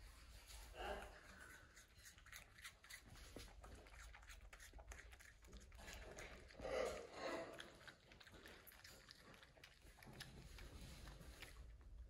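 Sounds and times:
raccoon crunching apple: 0.1s - 12.0s.

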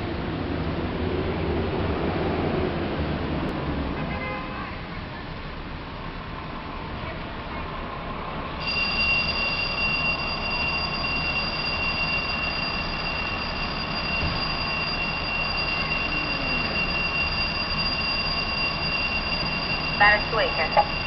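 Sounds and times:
wet street city noise: 0.0s - 21.0s
high-pitched whine: 8.6s - 21.0s.

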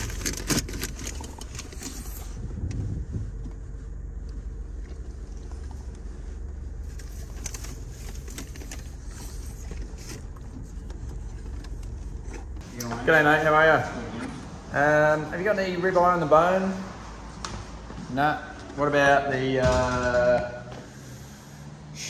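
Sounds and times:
car engine running: 0.0s - 13.7s.

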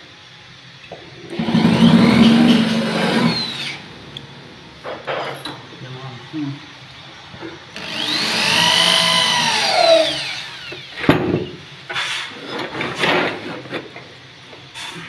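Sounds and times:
cordless drill motor whine: 1.3s - 3.9s, 7.7s - 11.0s.

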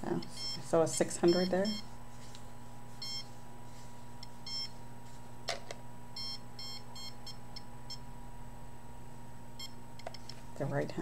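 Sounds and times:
meter alarm beeping: 0.2s - 1.9s, 3.0s - 3.3s, 4.4s - 4.8s, 6.2s - 8.1s, 9.6s - 9.8s.

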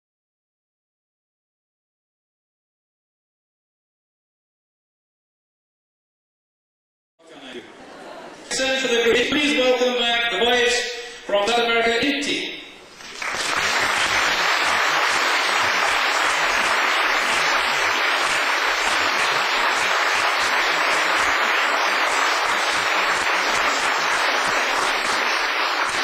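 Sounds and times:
audience applauding: 12.9s - 26.0s.

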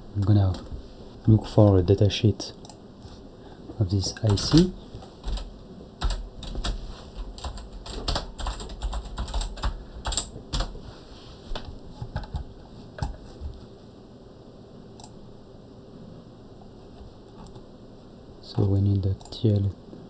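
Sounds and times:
computer keyboard typing: 4.1s - 10.8s, 12.0s - 13.2s.

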